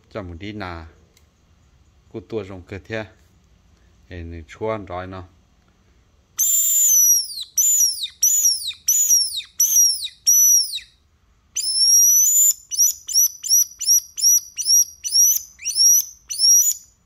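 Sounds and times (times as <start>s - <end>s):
pipe whistle bird call: 6.4s - 11.0s, 11.6s - 17.0s.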